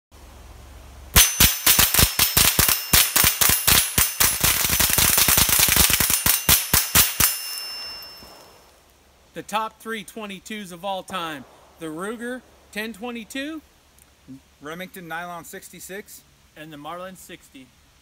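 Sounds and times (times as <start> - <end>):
thin ringing tone: 1.2 - 4.5, 6.0 - 8.8
rapid rifle fire: 1.2 - 7.4.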